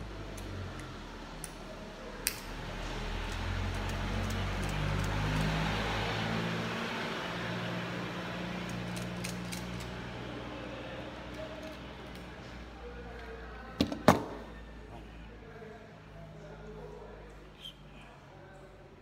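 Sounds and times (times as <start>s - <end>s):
hand tool clicks: 2.2s - 2.5s.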